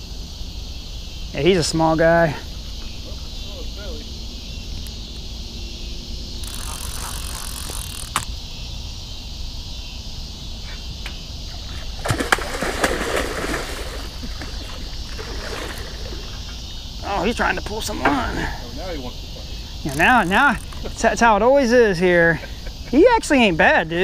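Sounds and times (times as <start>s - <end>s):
crickets chirping: 0.0s - 24.0s
fishing reel clicking: 6.4s - 8.3s, 19.9s - 20.8s.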